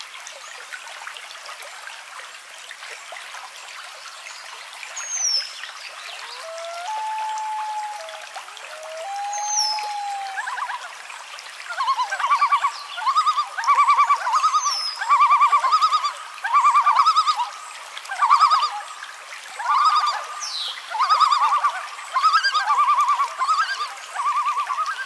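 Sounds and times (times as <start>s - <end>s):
loon tremolo call: 6.2s - 10.8s.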